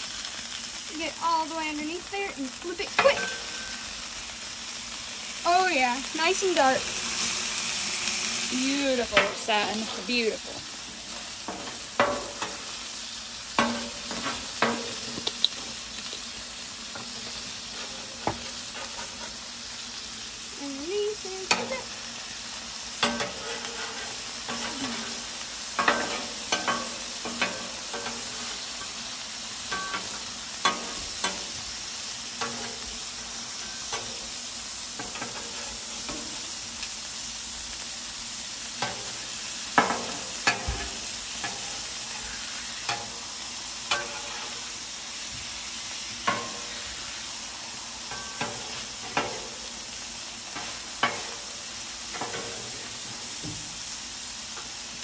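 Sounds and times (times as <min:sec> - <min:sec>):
patties sizzling on a griddle: 0:00.0 - 0:55.0
metal spatulas scraping and clinking: 0:23.0 - 0:25.1, 0:43.9 - 0:44.6.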